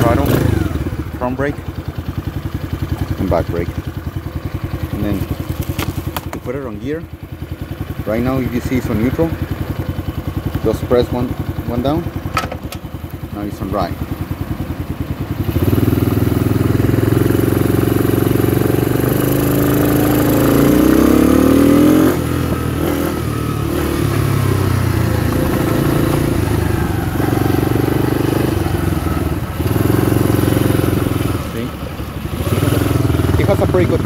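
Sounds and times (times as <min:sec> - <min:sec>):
quad bike engine revving: 0:00.0 - 0:12.8, 0:14.9 - 0:34.0.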